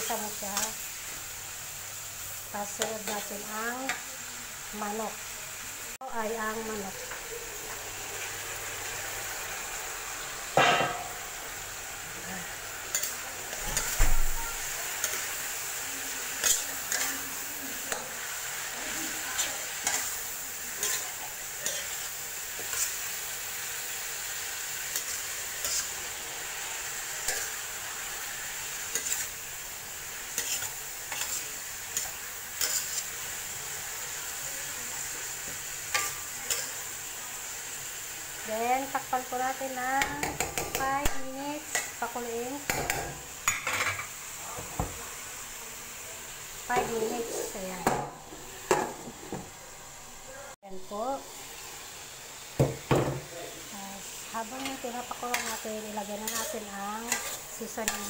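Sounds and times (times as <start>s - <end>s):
chicken sizzling in oil: 0.0s - 58.0s
metal spatula scraping a pan: 16.1s - 23.2s, 24.8s - 26.2s, 26.9s - 29.4s, 30.2s - 33.2s, 54.5s - 58.0s.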